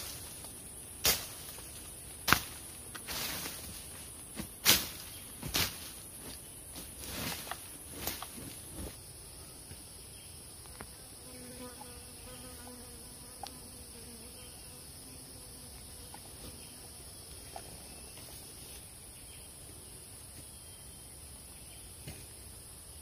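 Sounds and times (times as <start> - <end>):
hands rustling soil and twigs: 0.0 - 9.0.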